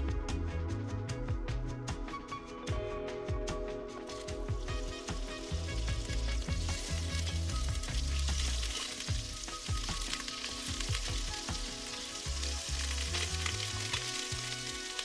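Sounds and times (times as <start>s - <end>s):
soft background music with bass: 0.0s - 15.0s
butter sizzling in a pot: 4.0s - 15.0s.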